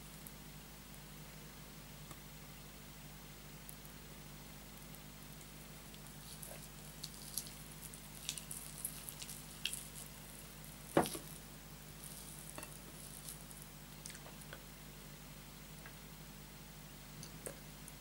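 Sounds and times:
wet chewing and mouth smacks: 6.0 - 10.2, 14.0 - 14.5.

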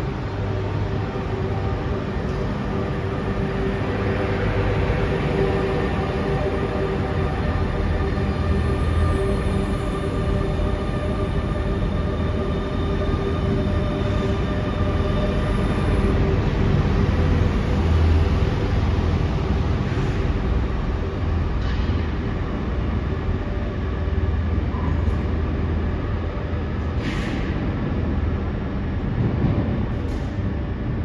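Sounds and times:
electric train rumbling: 0.0 - 31.0
steady train tones: 0.0 - 31.0.

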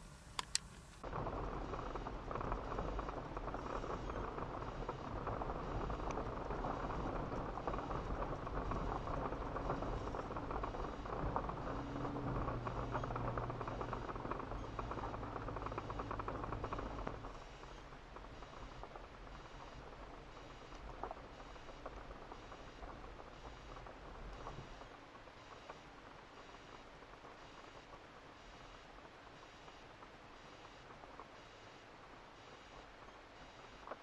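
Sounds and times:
low engine hum: 0.0 - 24.9
tyres crackling on gravel: 0.4 - 31.3.

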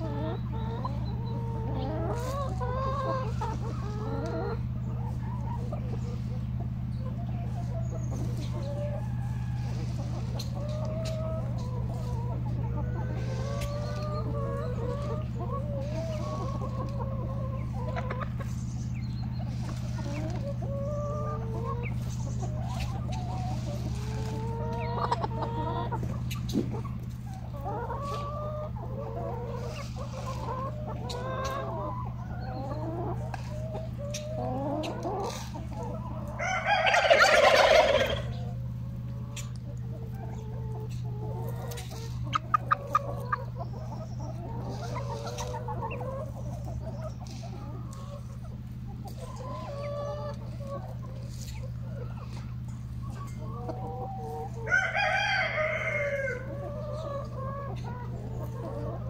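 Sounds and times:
chickens clucking: 0.0 - 59.0
rooster crowing: 36.3 - 38.4, 54.5 - 56.6.

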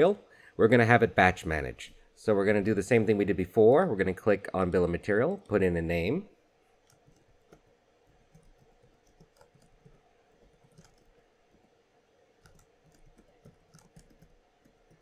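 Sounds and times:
keyboard typing: 6.8 - 11.8, 12.4 - 15.0.

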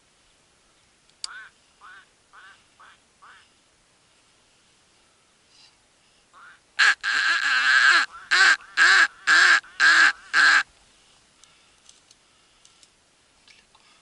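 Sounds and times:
duck quacking: 1.3 - 3.5, 6.4 - 10.7.

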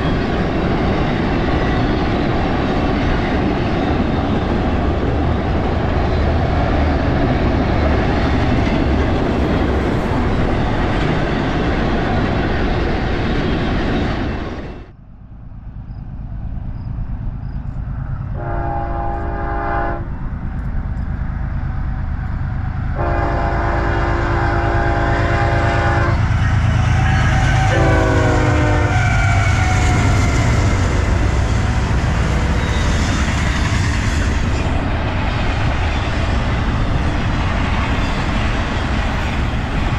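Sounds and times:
train rumble: 0.0 - 39.9
train air horn blasts: 18.4 - 20.1, 23.0 - 31.2.

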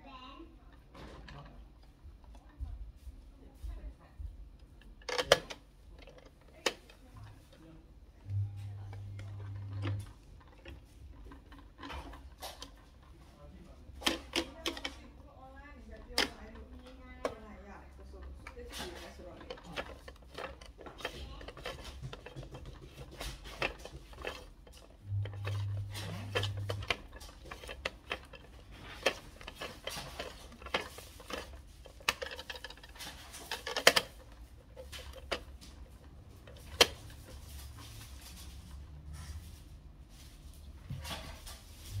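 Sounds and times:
plastic toy clicks and taps: 18.2 - 35.5.

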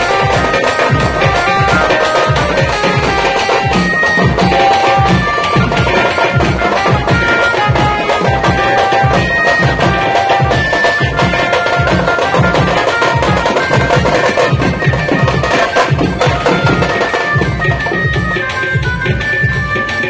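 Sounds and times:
hand drums beating fast: 0.0 - 20.0
held high melody: 0.0 - 20.0.

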